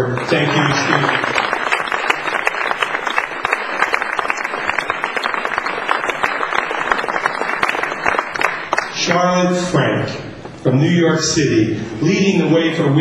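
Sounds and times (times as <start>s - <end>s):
audience applauding: 0.0s - 9.2s.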